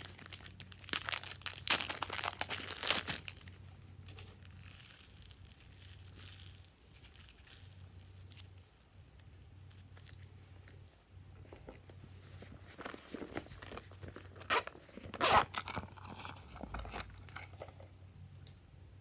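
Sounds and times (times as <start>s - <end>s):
slime crackling and crunching: 0.0s - 10.9s.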